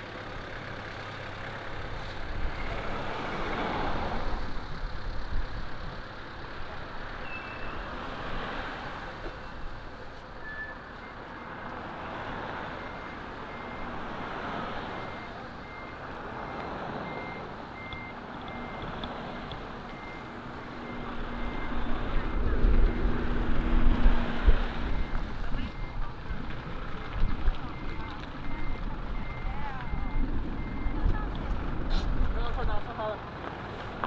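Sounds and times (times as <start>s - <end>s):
vehicle engine running: 0.0s - 7.2s, 13.0s - 34.0s
reversing alarm beeping: 12.8s - 13.9s, 14.9s - 18.9s, 19.9s - 23.2s, 24.9s - 26.0s, 27.7s - 31.1s.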